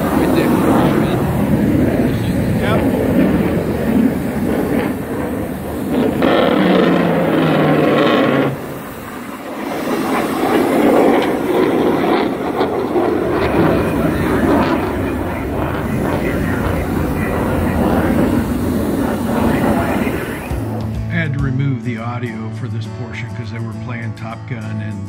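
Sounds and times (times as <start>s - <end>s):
distant jet aircraft rumbling: 0.0s - 22.0s.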